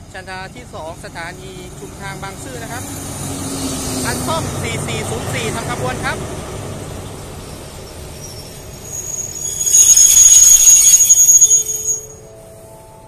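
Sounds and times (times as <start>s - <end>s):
train brakes squealing: 7.4s - 12.5s
rising three-note chime: 8.9s - 12.4s.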